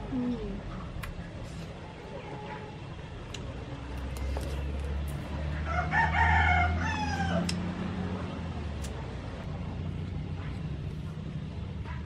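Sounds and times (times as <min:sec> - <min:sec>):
rooster crowing: 0:05.6 - 0:07.7.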